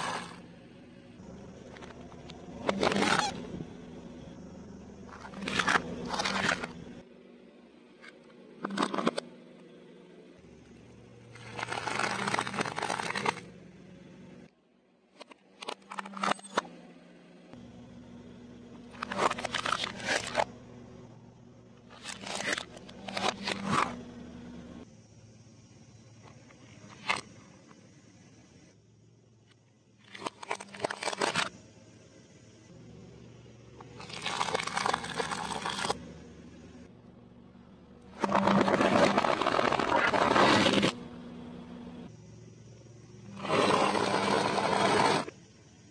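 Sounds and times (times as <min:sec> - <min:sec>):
low steady hum: 0:00.0 - 0:45.9
plastic toys cracking under tyre: 0:11.4 - 0:13.4.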